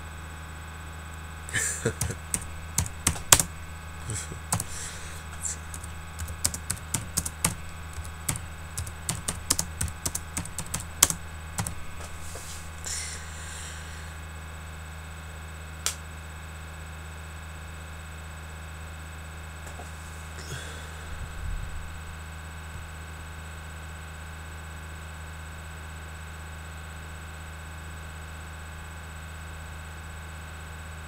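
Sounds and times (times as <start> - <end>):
low electrical hum: 0.0 - 31.0
keyboard key clicks: 2.0 - 3.5, 5.7 - 11.8.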